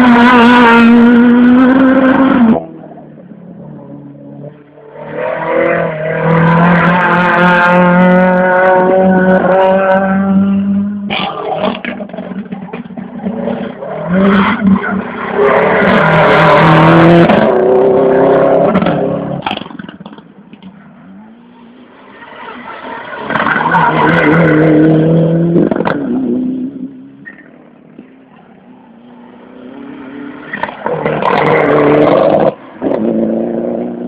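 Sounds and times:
rally car engine revving: 0:00.0 - 0:28.5, 0:29.2 - 0:34.0.

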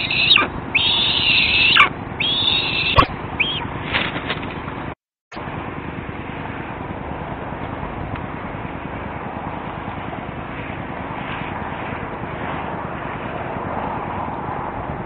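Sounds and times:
eagles calling: 0:00.0 - 0:03.7.

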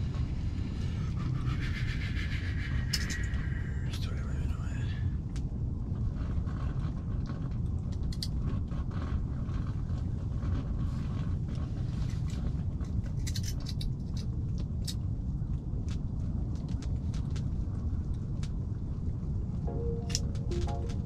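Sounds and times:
fishing jig clicks and rattles: 0:13.1 - 0:15.0
low rumble: 0:15.5 - 0:21.0.

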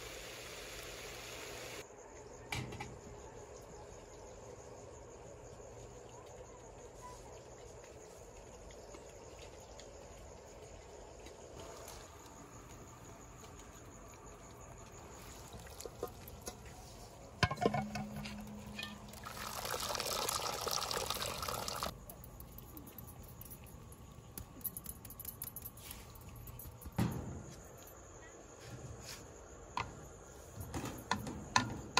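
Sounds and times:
liquid pouring: 0:18.1 - 0:22.0.

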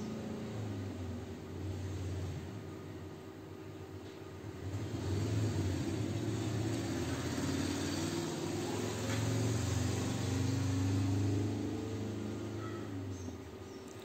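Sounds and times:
engine humming: 0:04.4 - 0:14.0.

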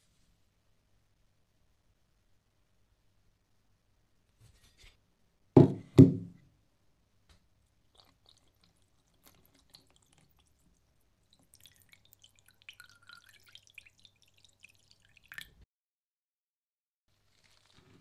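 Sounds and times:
liquid dripping and splashing: 0:07.7 - 0:15.6.

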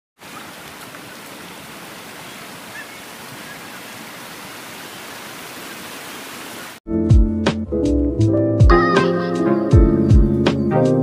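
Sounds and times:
waterfall rushing: 0:00.2 - 0:06.8.

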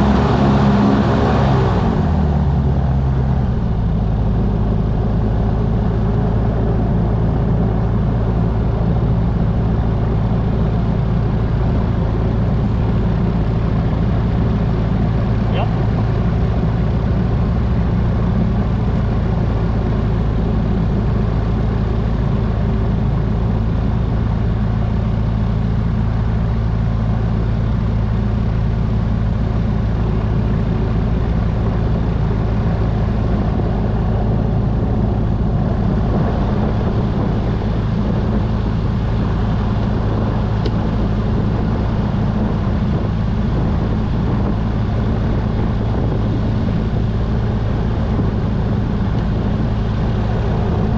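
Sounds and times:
piston engine humming: 0:00.0 - 0:50.9.

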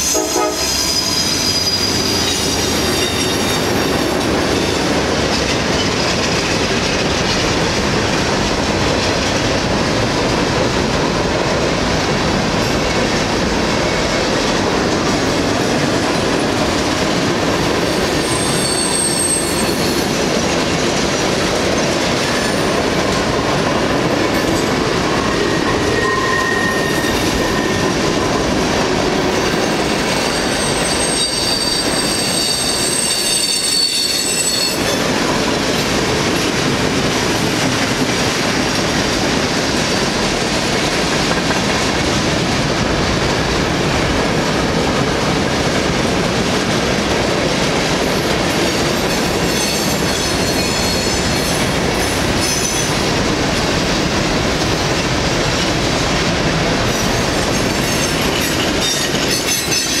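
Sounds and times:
metal wheel squeals: 0:00.0 - 0:03.7, 0:18.2 - 0:20.1, 0:25.9 - 0:27.8, 0:30.3 - 0:34.9
freight train wheels rumbling: 0:00.0 - 1:00.0.

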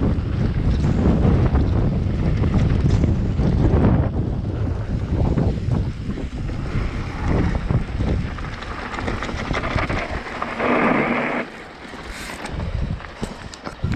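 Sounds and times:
bike tyres rolling on gravel: 0:00.0 - 0:13.9
wind buffeting microphone: 0:00.0 - 0:13.9
bike brakes hissing: 0:05.5 - 0:13.5.

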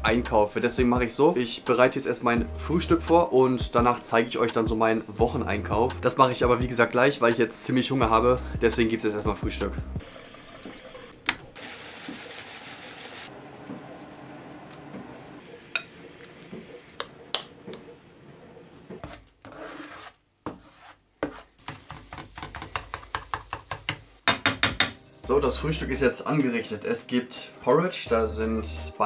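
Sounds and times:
tap water running into kettle: 0:10.0 - 0:15.1
kitchenware clinking: 0:15.6 - 0:18.0
utensil scraping frying pan: 0:18.6 - 0:24.0.

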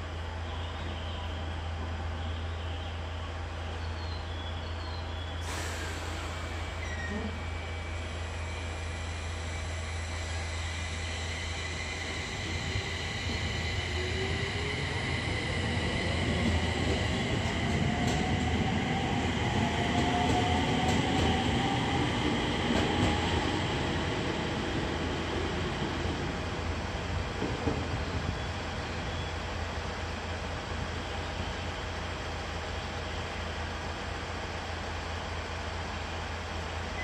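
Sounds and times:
electric train motor whine: 0:06.5 - 0:17.2.

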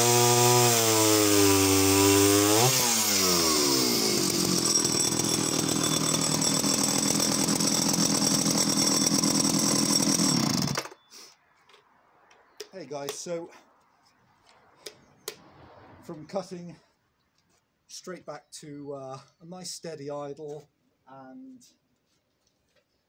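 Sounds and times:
chainsaw cutting a log: 0:00.0 - 0:11.0.

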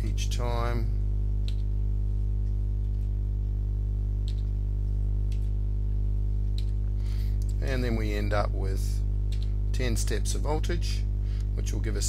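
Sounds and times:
steady electrical hum: 0:00.0 - 0:12.0
computer keys clicking: 0:01.4 - 0:01.7, 0:04.2 - 0:04.6, 0:05.2 - 0:05.6, 0:09.3 - 0:09.6.

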